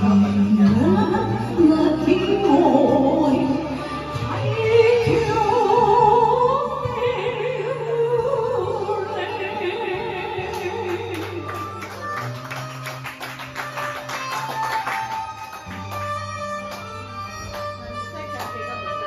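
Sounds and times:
woman singing with vibrato: 0.0 - 11.8
backing track: 0.0 - 19.0.

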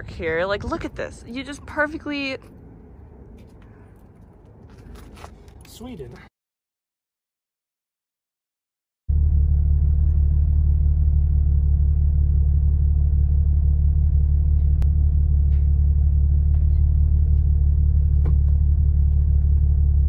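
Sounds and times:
vehicle engine idling: 9.1 - 20.0.

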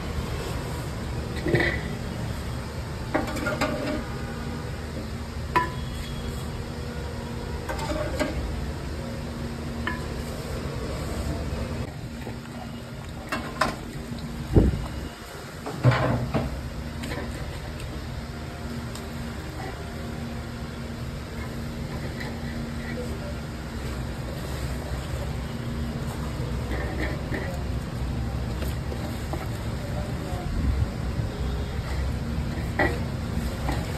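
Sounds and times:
steady background hum: 0.0 - 33.9
metal pots and utensils clinking: 3.1 - 4.1, 7.6 - 8.5, 31.8 - 33.9.

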